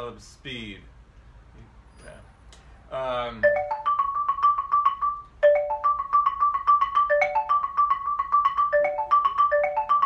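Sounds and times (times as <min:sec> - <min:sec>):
xylophone played with mallets: 0:03.2 - 0:10.0.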